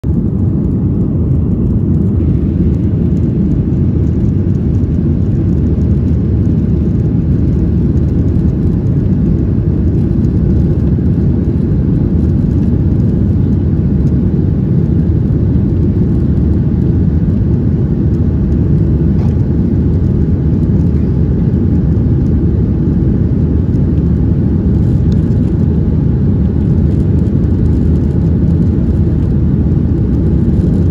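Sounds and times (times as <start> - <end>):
rushing air: 0.0 - 27.4
jet engines rumbling: 0.0 - 30.9.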